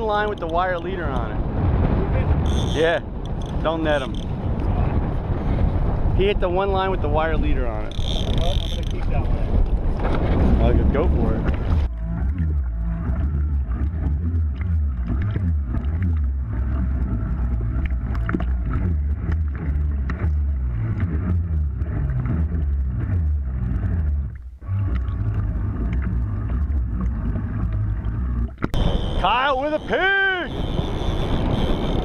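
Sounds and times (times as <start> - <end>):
water sloshing and lapping: 7.5 - 29.8.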